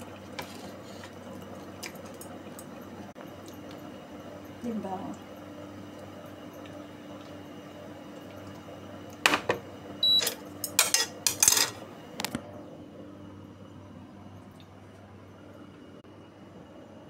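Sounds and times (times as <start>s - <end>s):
dishes and utensils clinking: 9.3s - 11.8s.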